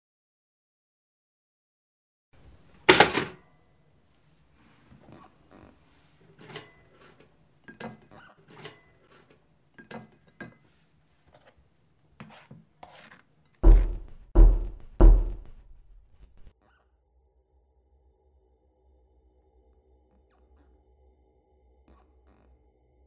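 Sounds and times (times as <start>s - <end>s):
hands working at kitchen counter: 2.4s - 3.4s, 4.6s - 16.5s
loud deep thuds: 13.6s - 16.5s.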